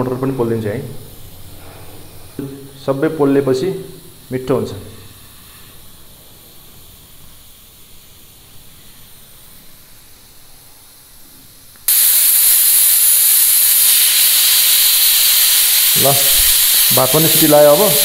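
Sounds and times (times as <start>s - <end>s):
faint hiss: 0.0s - 18.0s
pressure cooker whistling: 11.9s - 18.0s.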